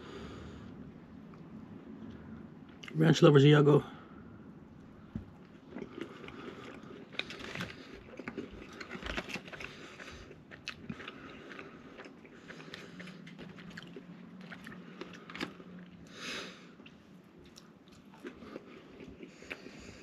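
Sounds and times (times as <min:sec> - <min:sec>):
low steady hum: 0:00.0 - 0:20.0
crisp breading crunching: 0:05.6 - 0:15.7.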